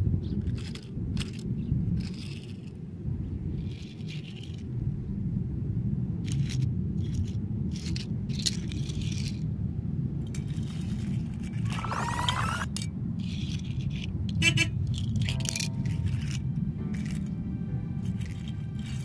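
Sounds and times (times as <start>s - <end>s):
steady low rumble: 0.0s - 19.0s
toy car wheels scraping asphalt: 0.4s - 2.8s, 3.5s - 4.7s, 6.2s - 9.5s, 10.2s - 17.4s, 18.0s - 19.0s.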